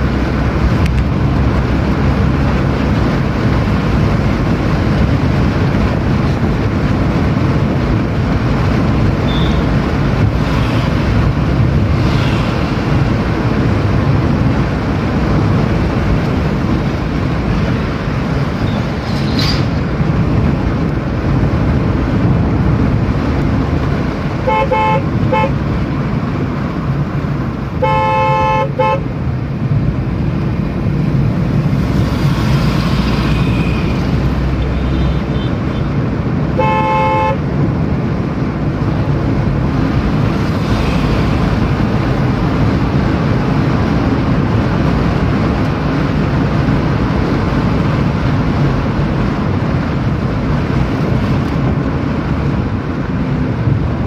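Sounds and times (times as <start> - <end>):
car engine and road noise: 0.0 - 54.0
car horn honking: 9.2 - 9.8, 24.4 - 25.6, 27.8 - 29.1, 34.6 - 35.9, 36.5 - 37.4.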